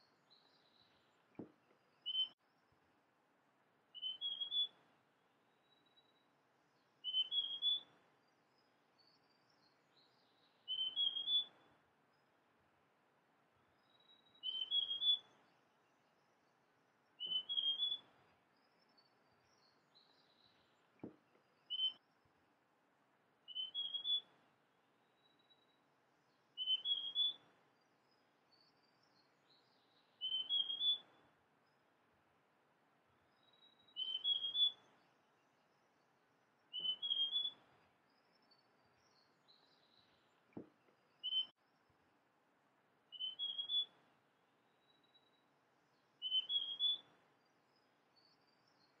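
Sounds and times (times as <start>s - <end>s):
bird singing rising notes: 10.2s - 11.6s, 17.2s - 18.1s, 23.5s - 24.3s, 33.4s - 35.1s, 36.6s - 37.6s, 43.1s - 44.0s, 44.8s - 47.1s.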